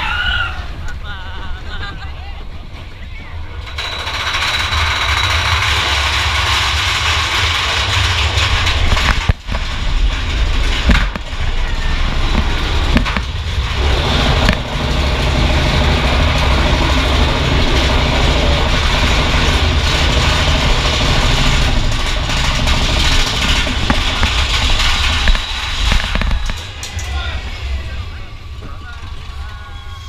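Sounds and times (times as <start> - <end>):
roller coaster rumbling and rattling: 0.0 - 30.0
sharp track clacks: 3.6 - 27.2.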